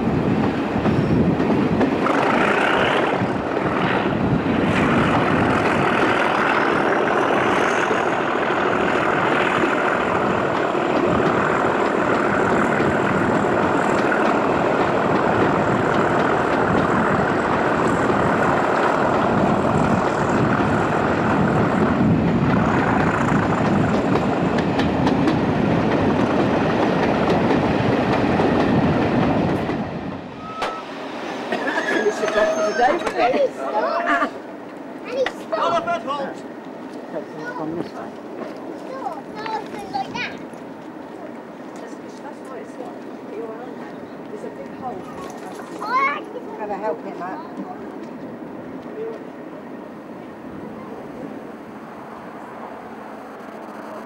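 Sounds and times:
diesel locomotive engine working hard: 0:00.0 - 0:54.0
wheel and rail noise: 0:00.0 - 0:54.0
thin high whistle: 0:30.4 - 0:30.9.

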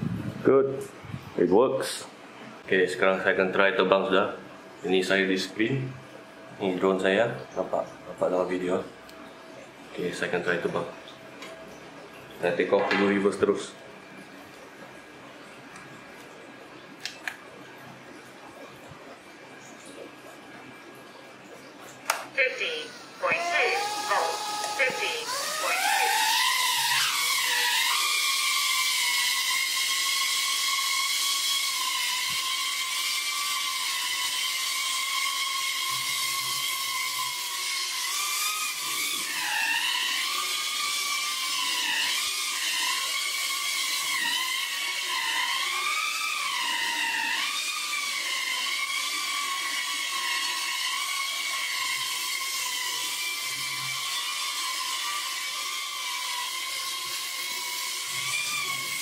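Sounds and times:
drone motors high whine: 0:22.3 - 0:59.0.

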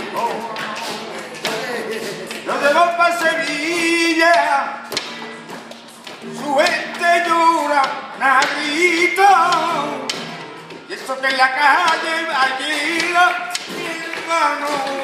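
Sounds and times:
hand-clapping: 0:00.0 - 0:15.0
rhythmic taps: 0:00.0 - 0:15.0
solo voice singing: 0:06.3 - 0:10.1.

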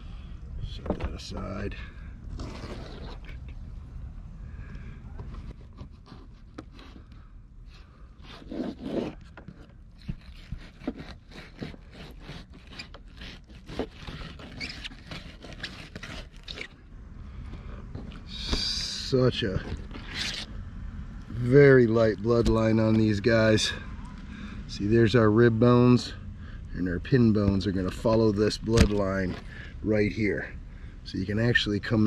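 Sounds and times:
knife scraping through fish bones: 0:10.0 - 0:16.7.

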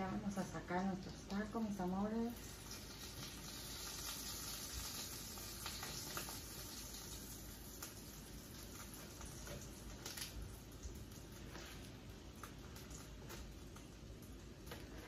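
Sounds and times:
oil sizzling in a skillet: 0:01.1 - 0:15.0.

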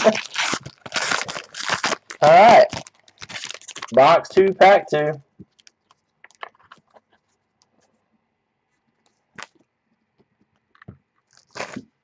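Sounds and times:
foil wrapper rustle: 0:00.0 - 0:04.0, 0:11.3 - 0:12.0.

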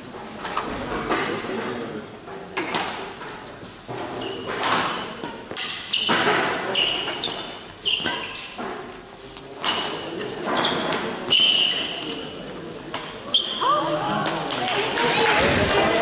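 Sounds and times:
shoes squeaking on floor: 0:04.1 - 0:09.0, 0:09.6 - 0:14.0.

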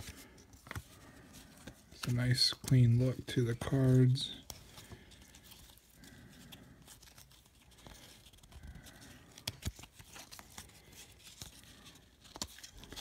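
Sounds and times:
cards rustling and clicking: 0:00.0 - 0:13.0
cards snapping: 0:09.3 - 0:10.6.

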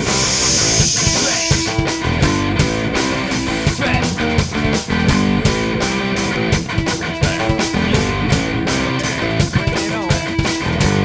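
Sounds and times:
bright hissing wash: 0:00.0 - 0:01.8
hard rock guitar: 0:00.0 - 0:11.0
rock drum beat: 0:00.0 - 0:11.0.

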